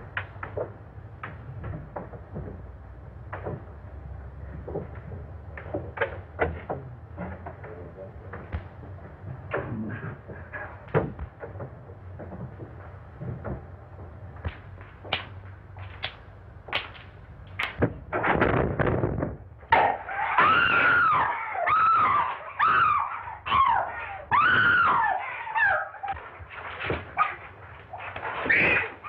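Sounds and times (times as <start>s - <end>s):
thumps and scuffling: 0.0s - 29.0s
women screaming: 20.1s - 25.9s.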